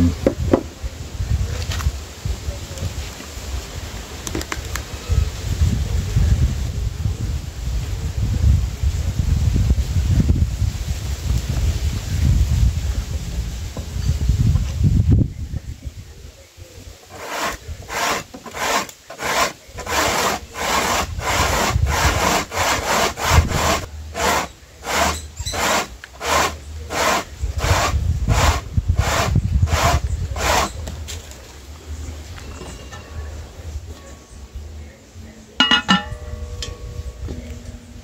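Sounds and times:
corn rasping on tin grater: 0:17.1 - 0:30.8.

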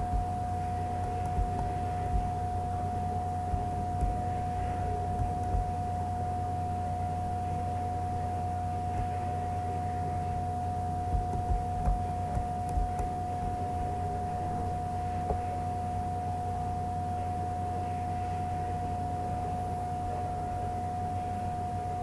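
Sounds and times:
steady whining tone: 0:00.0 - 0:06.8, 0:08.0 - 0:15.5
low electrical hum: 0:00.0 - 0:22.0.

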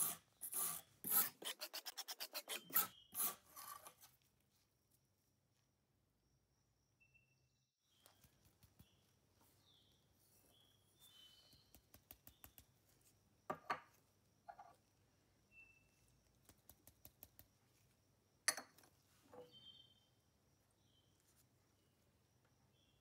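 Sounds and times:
faint high chirps: 0:06.9 - 0:12.6, 0:15.4 - 0:16.2
glassware and dish clinks: 0:18.5 - 0:18.8.

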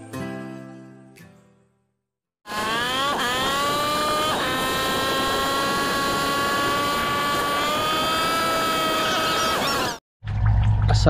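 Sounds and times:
small motor whining: 0:02.5 - 0:10.0.

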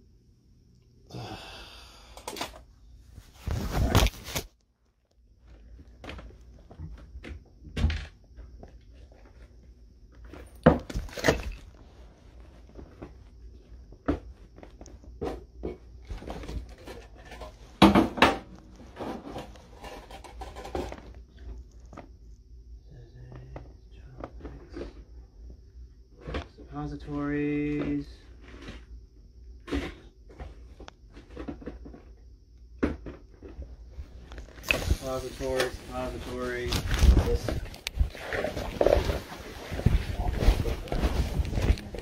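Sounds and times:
objects knocking and clattering: 0:05.6 - 0:09.5, 0:10.2 - 0:11.7, 0:13.9 - 0:22.1, 0:29.6 - 0:32.2, 0:32.8 - 0:33.7.

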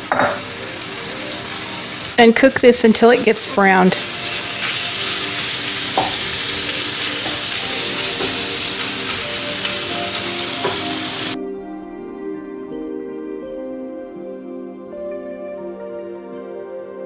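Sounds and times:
meat sizzling in oil: 0:00.0 - 0:11.4
soft background music: 0:00.0 - 0:17.0.

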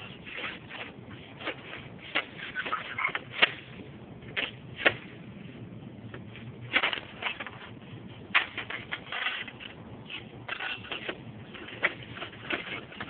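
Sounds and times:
slate pieces knocking and scraping: 0:06.7 - 0:07.7, 0:08.3 - 0:13.0.

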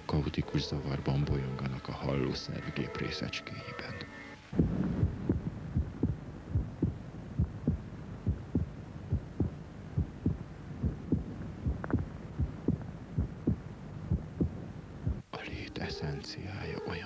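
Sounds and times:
heartbeat thumps: 0:04.5 - 0:15.3.

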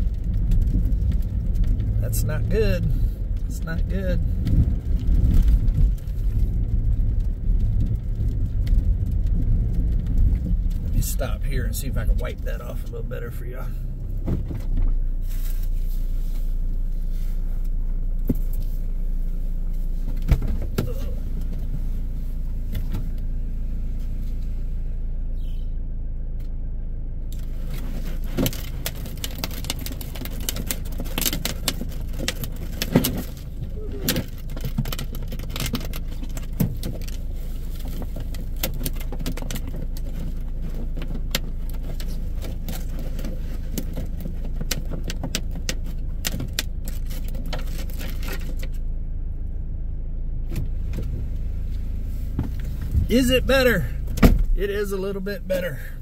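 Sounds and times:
car engine idling: 0:00.0 - 0:56.0
windshield wipers sweeping: 0:50.5 - 0:56.0.

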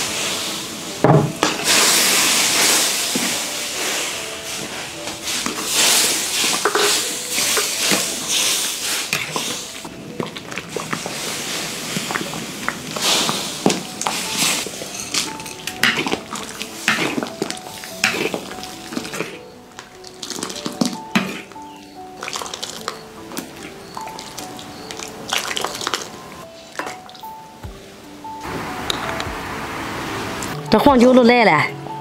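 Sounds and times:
background music: 0:00.0 - 0:32.0
metal ladle scraping wok: 0:01.4 - 0:09.9, 0:10.9 - 0:21.8
soup sloshing and hissing: 0:01.4 - 0:27.2.

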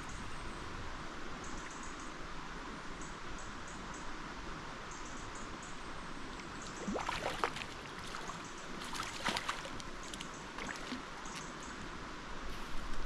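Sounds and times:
flowing river water: 0:05.8 - 0:13.0
fish splashing in water: 0:06.5 - 0:11.5.

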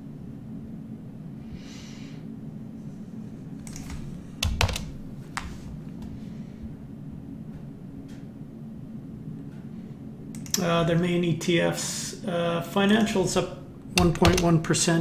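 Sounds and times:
steady low hum: 0:00.0 - 0:15.0
keyboard keystrokes clicking: 0:03.6 - 0:05.0, 0:14.0 - 0:14.6.

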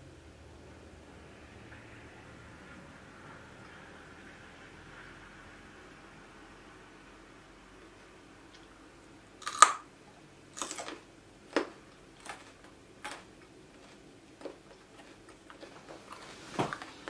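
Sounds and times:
carrot crunching: 0:09.4 - 0:17.0.

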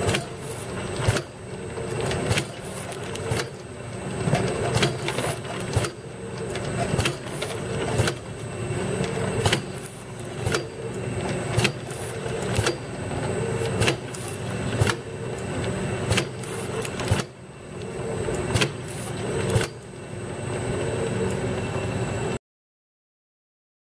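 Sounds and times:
machine motor humming: 0:00.0 - 0:22.4.

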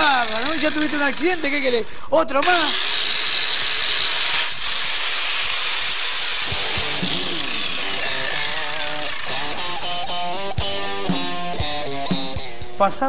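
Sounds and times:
angle grinder whining: 0:00.0 - 0:12.7
music: 0:06.5 - 0:13.0.

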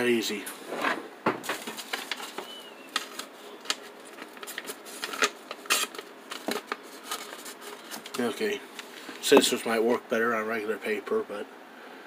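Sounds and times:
paper being handled: 0:01.6 - 0:09.5.

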